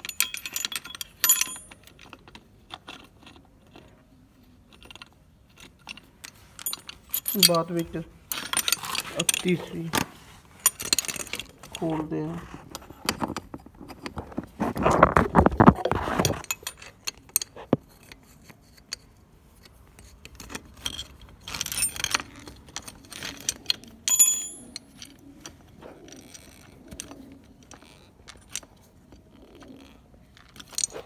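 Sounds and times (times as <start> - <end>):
ringing metal clink: 0.0 - 1.8, 6.6 - 9.6, 24.1 - 24.8.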